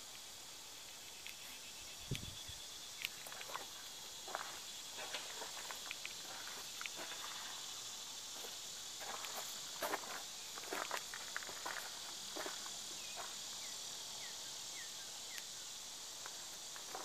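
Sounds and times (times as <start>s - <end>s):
insects chirring: 0.0s - 17.0s
footsteps crunching on gravel: 3.1s - 7.7s, 8.3s - 13.4s, 16.2s - 17.0s.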